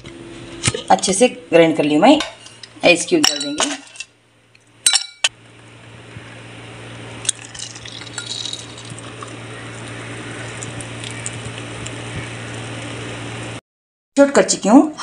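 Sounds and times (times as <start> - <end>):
milkshake pouring into glass: 7.2 - 12.0
ice cubes clinking into glass: 7.3 - 9.1.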